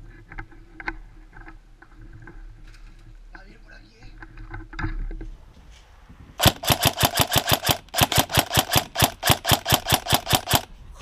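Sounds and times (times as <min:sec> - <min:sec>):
airsoft rifle rapid firing: 0:06.4 - 0:10.7.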